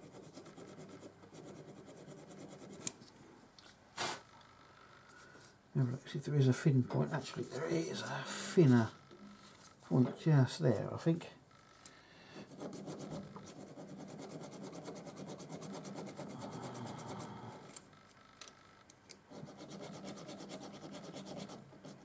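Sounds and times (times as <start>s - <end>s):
needle file rasping on metal: 12.5s - 17.3s, 19.3s - 22.0s.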